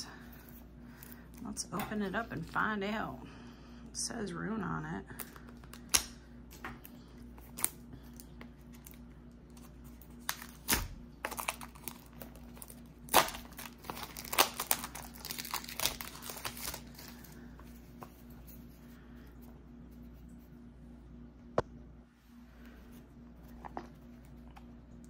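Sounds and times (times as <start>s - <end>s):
packaging crinkling and tearing: 7.4s - 17.4s.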